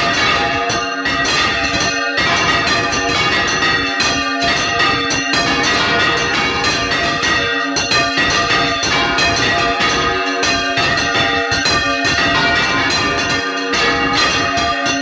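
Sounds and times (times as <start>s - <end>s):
church bells pealing: 0.0s - 15.0s.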